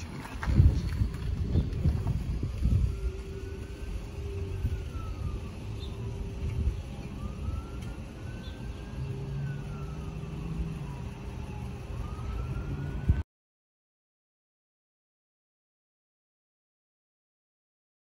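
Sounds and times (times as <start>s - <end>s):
siren wailing: 0.0s - 13.2s
steady low rumble: 0.0s - 13.2s.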